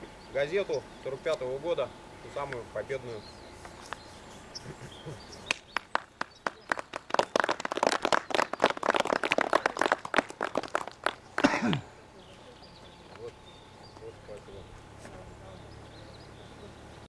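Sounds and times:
group clapping: 0:05.4 - 0:11.8.

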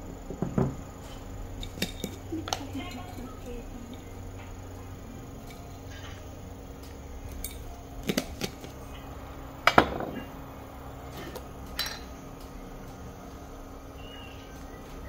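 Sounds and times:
faint steady hum: 0:00.0 - 0:15.0
glass jars and spoon clinking: 0:11.8 - 0:12.1.

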